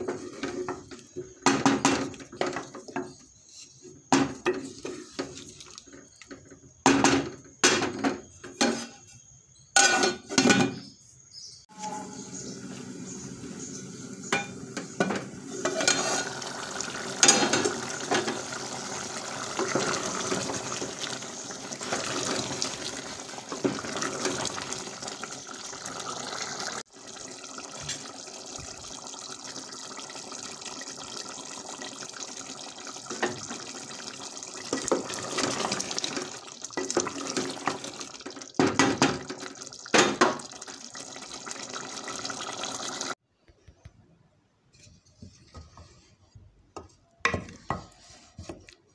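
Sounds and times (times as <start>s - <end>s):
steady watery noise: 12.2s - 43.2s.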